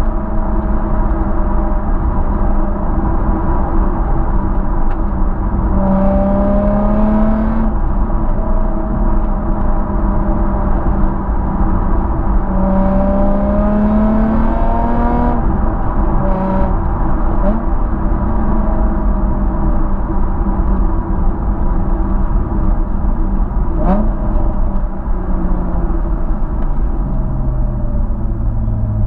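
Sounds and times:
car engine and exhaust accelerating: 0.0s - 29.0s
road rumble: 0.0s - 29.0s
wind: 0.0s - 29.0s.

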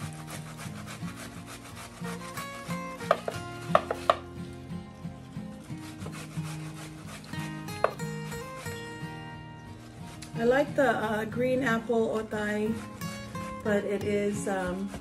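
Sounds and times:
wet rasping of grating: 0.0s - 15.0s.

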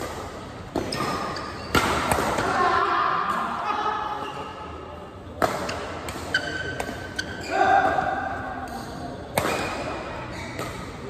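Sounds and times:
rackets hitting shuttlecock: 0.0s - 2.6s, 5.4s - 11.0s.

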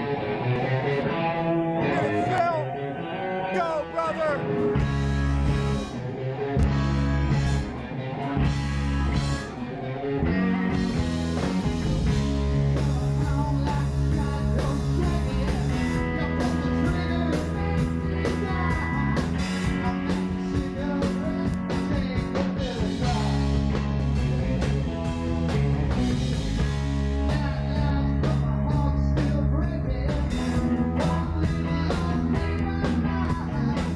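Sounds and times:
rock band playing live: 0.0s - 33.9s
person singing: 1.8s - 4.8s, 12.6s - 23.8s, 27.1s - 33.9s.

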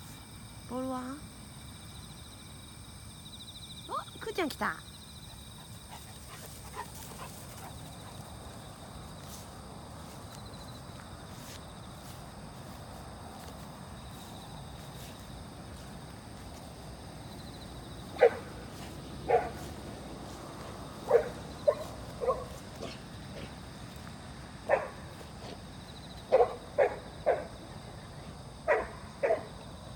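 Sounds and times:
low outdoor background: 0.0s - 29.9s
dog barking: 18.2s - 18.5s, 19.3s - 19.7s, 21.0s - 23.0s, 24.7s - 25.1s, 26.3s - 27.5s, 28.7s - 29.6s.

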